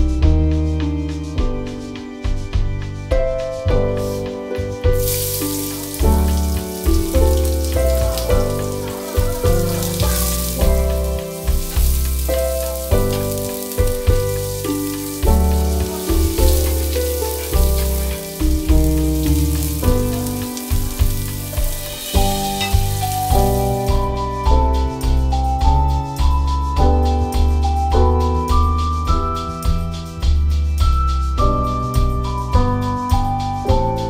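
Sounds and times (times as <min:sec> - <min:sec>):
background music with beat: 0:00.0 - 0:34.0
onion sizzling in oil: 0:04.0 - 0:24.4.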